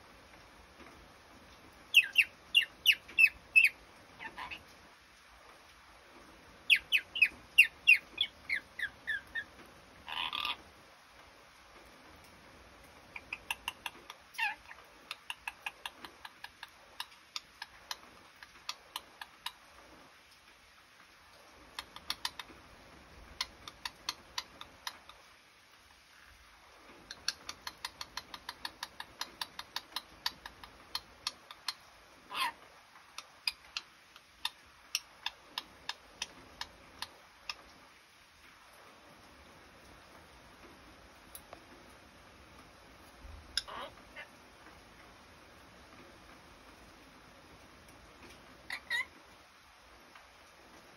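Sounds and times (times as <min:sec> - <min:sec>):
parrot chirping: 0:01.9 - 0:04.8, 0:06.6 - 0:10.6, 0:13.1 - 0:19.6, 0:21.7 - 0:22.6, 0:23.3 - 0:25.3, 0:27.1 - 0:37.8, 0:43.5 - 0:44.4, 0:48.6 - 0:49.2
parrot squawk: 0:02.0 - 0:04.7, 0:06.7 - 0:10.6, 0:13.2 - 0:16.0, 0:31.2 - 0:32.6, 0:43.6 - 0:44.4, 0:48.7 - 0:49.1.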